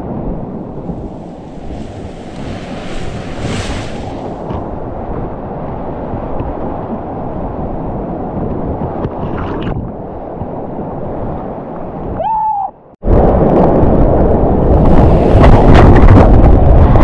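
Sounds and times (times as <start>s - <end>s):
paddle splash: 0.8s - 4.8s.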